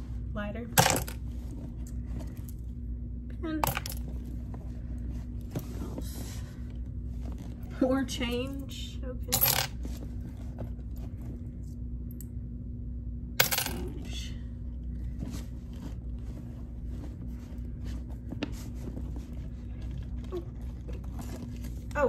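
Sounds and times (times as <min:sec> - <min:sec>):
steady low hum: 0:00.0 - 0:22.0
hand rummaging in a handbag: 0:03.6 - 0:07.7, 0:09.3 - 0:11.7, 0:15.0 - 0:22.0
coins clinking: 0:09.3 - 0:09.8, 0:13.4 - 0:14.0.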